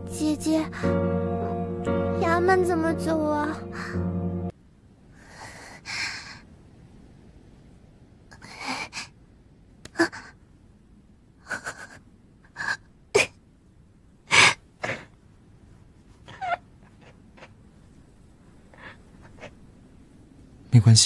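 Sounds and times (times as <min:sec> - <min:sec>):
girl crying: 0:00.2 - 0:04.2.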